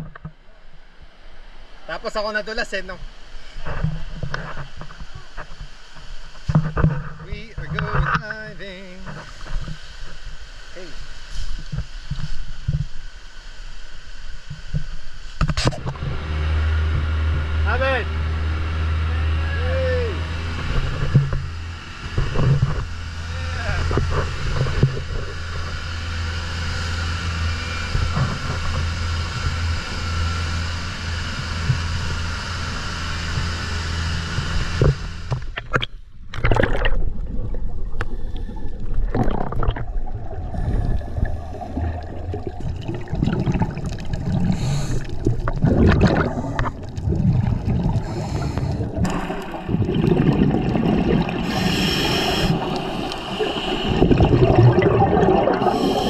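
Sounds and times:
boat engine humming: 15.8 - 56.0
underwater bubbles gurgling: 23.6 - 26.6, 35.6 - 56.0.

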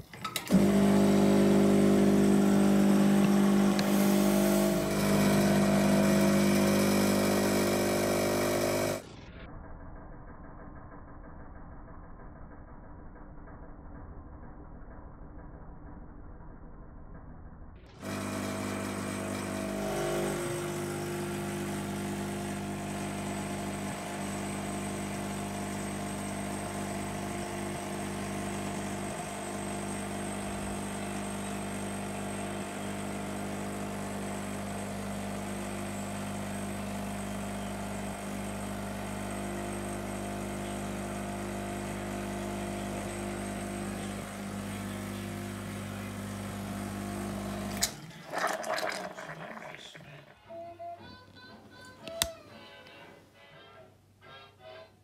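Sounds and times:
espresso machine pump humming: 0.4 - 9.0, 18.0 - 50.0.

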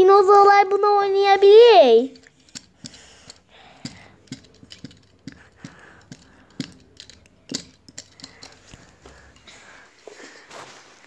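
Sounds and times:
plastic toy pieces clicking: 2.1 - 9.0.

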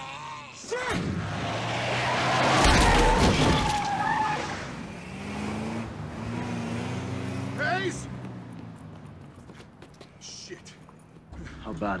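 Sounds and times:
tyres squealing on asphalt: 0.7 - 11.4
truck engine revving: 0.9 - 9.6.

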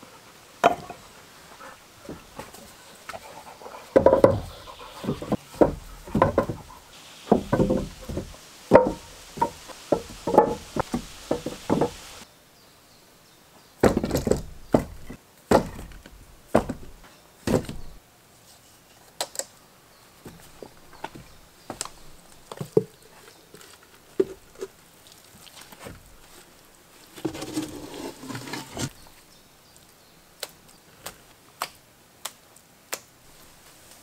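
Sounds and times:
tool knocking on wood: 5.1 - 6.7, 7.3 - 12.0.

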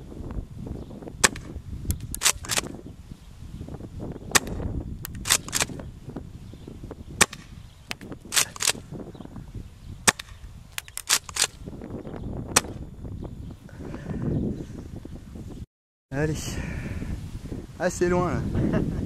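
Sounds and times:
wind rumble on microphone: 0.0 - 19.0
airsoft shotgun pops: 1.2 - 2.7, 4.3 - 5.8, 7.2 - 8.8, 10.1 - 11.6.

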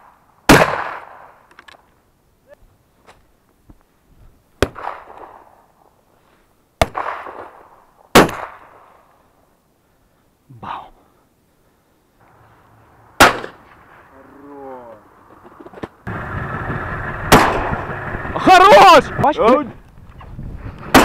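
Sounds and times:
shotgun shots: 0.5 - 1.4, 4.6 - 5.5, 6.8 - 8.9, 13.2 - 13.6, 17.3 - 17.9.

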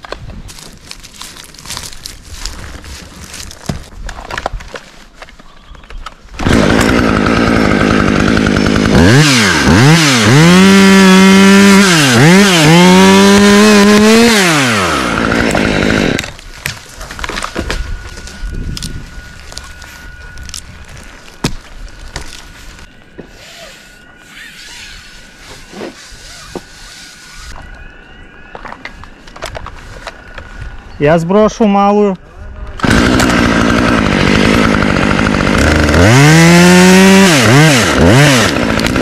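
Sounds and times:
chainsaw cutting wood: 6.3 - 23.8, 32.8 - 39.0.

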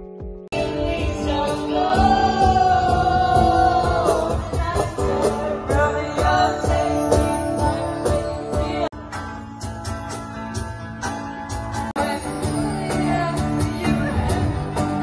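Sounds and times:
drums: 0.0 - 15.0
person singing: 0.5 - 9.0, 12.0 - 15.0.

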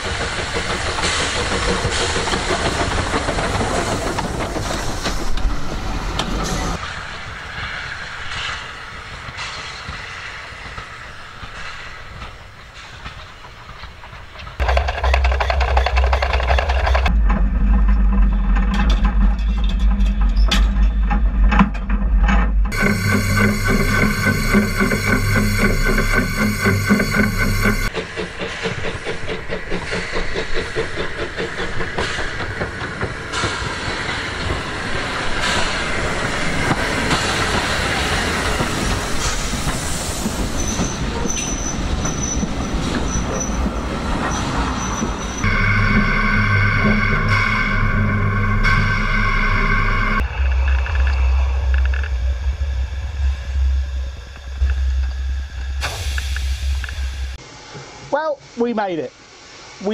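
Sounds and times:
train wheels clicking: 0.0 - 6.8, 7.5 - 17.1, 22.7 - 50.2
steam hissing: 0.0 - 14.7, 22.7 - 50.2, 52.6 - 59.9.

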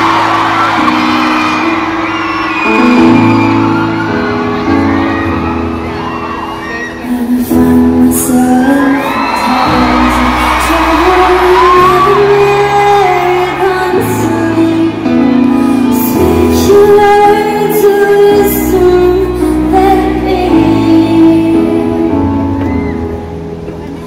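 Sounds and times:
woman singing a slow ballad: 6.9 - 23.0.

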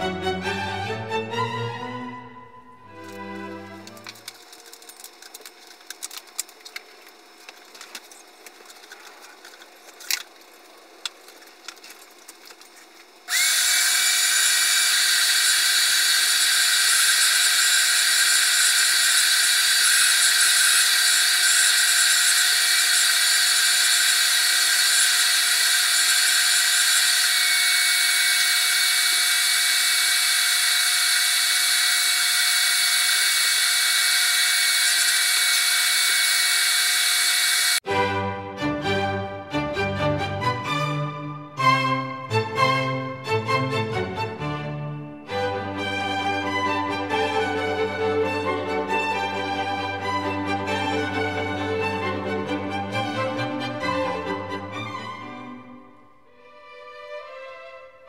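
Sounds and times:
shop vacuum motor whining: 2.8 - 37.9.

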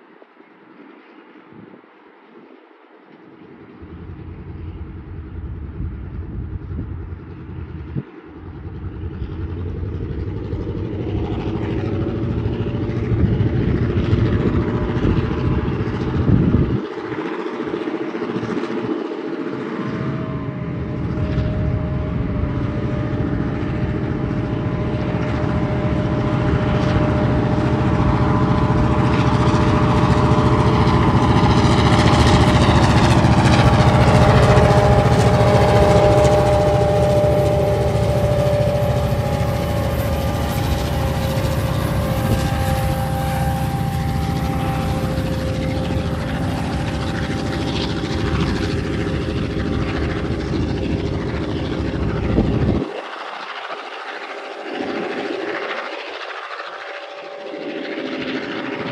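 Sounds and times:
diesel locomotive engines rumbling: 0.0 - 58.9
steady tone: 19.4 - 52.8.

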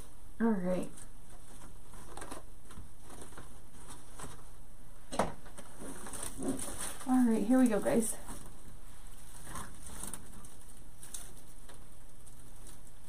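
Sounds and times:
hands rustling ribbon: 5.5 - 13.0.

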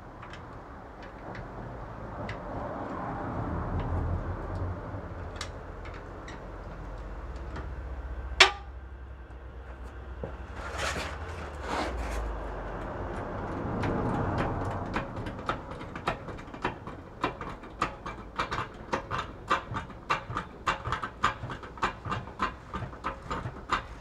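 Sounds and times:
sharp metallic clank: 8.4 - 8.7
metal scraping and rattling: 9.7 - 24.0.

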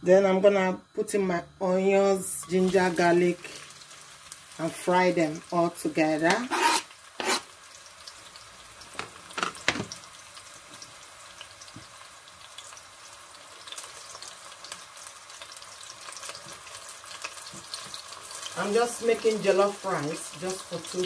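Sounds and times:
onions sizzling in hot oil: 0.5 - 21.0.

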